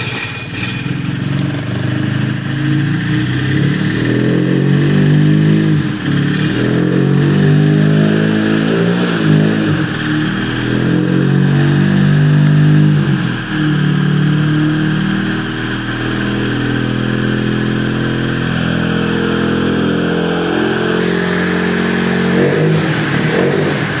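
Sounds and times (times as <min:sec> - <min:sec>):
car engine idling: 0:00.0 - 0:24.0.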